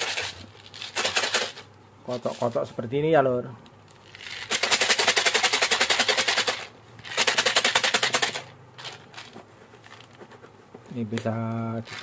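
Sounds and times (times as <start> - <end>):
pellets rattling in plastic jar: 0.0 - 1.6, 4.0 - 9.3.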